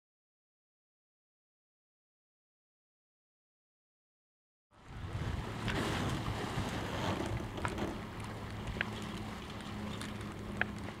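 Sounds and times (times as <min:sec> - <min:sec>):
wind and sea rush: 0:04.7 - 0:11.0.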